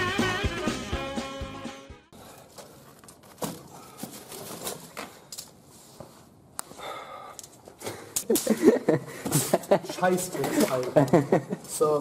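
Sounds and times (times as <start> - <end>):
cardboard and wire rustling: 2.2 - 6.2.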